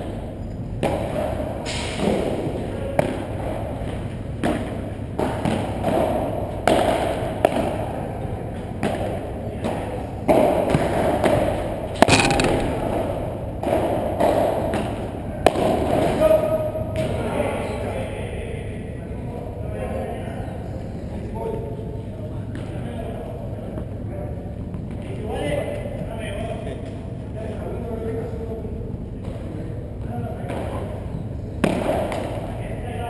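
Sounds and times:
padel ball hits echoing in a hall: 12.0s - 15.7s.

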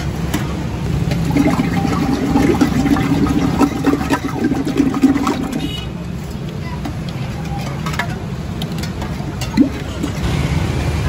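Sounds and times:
running water: 1.0s - 6.0s, 8.8s - 10.3s.

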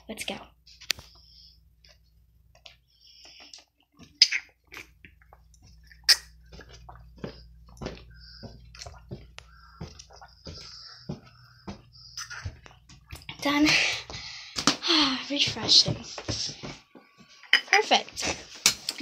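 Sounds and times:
footsteps on stairs: 6.4s - 17.3s.

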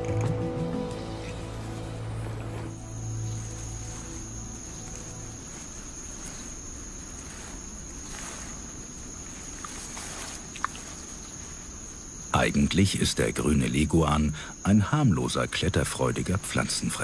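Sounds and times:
background music: 0.0s - 5.8s
insects droning: 0.0s - 17.0s.

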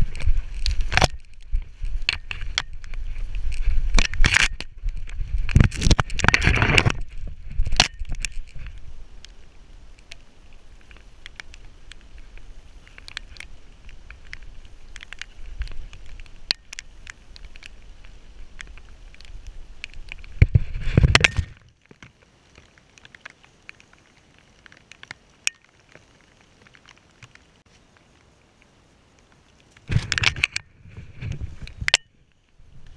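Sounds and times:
faint ticks: 7.6s - 32.9s.

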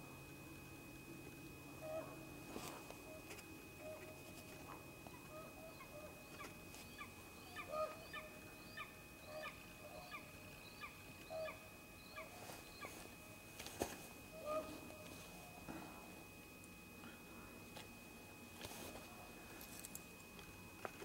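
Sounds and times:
background hiss: 0.0s - 21.0s
bird calling: 1.8s - 2.2s, 3.0s - 4.2s, 5.0s - 13.1s, 14.3s - 15.7s.

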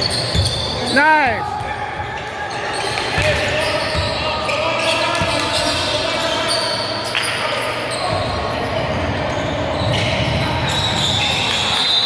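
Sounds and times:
basketball bouncing on gym floor: 0.0s - 0.8s, 3.0s - 4.2s
chatter of many voices: 0.0s - 12.0s.

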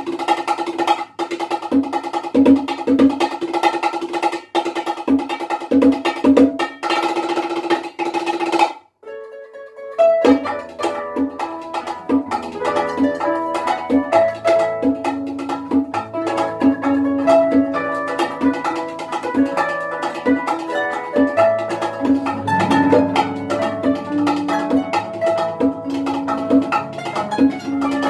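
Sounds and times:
bongo strikes: 0.0s - 8.8s, 10.0s - 28.0s
plucked harp: 9.0s - 28.0s.

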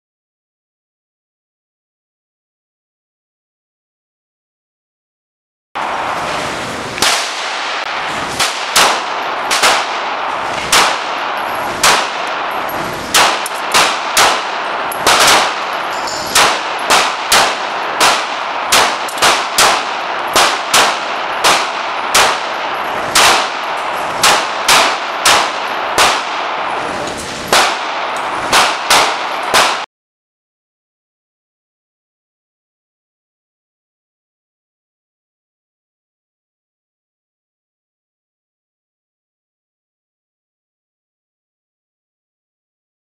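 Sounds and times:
handgun shots indoors: 6.9s - 29.9s.

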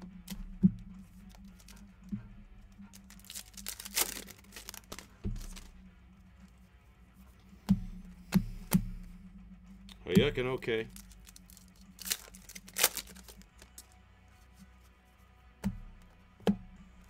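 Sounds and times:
foil wrapper tearing and crinkling: 1.4s - 1.8s, 2.9s - 5.7s, 10.9s - 13.9s.

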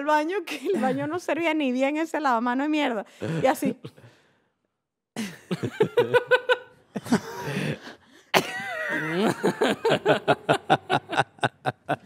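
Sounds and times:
people laughing: 5.2s - 12.0s.

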